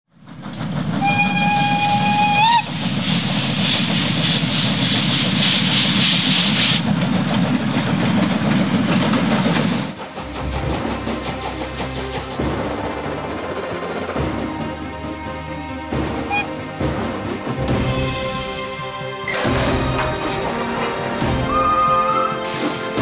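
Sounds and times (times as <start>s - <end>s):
locomotive low rumble: 0.2s - 18.1s
steam locomotive whistle: 1.0s - 2.7s, 16.2s - 16.6s, 21.4s - 22.7s
steam hissing: 1.4s - 7.0s, 21.2s - 23.0s.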